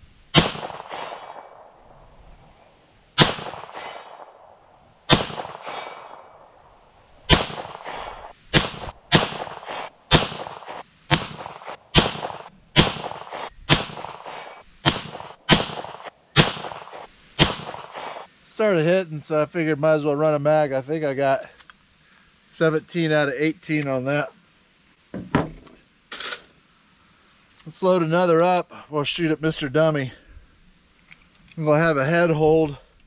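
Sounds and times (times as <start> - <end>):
pistol shots with echo: 0.4 - 1.7, 3.2 - 6.5, 7.3 - 18.1.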